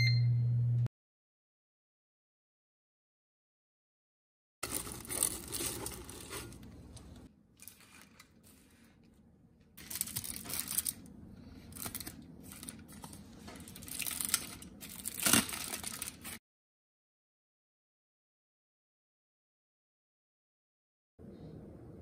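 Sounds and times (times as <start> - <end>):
aluminium foil crinkling: 4.6 - 9.0, 9.8 - 16.4.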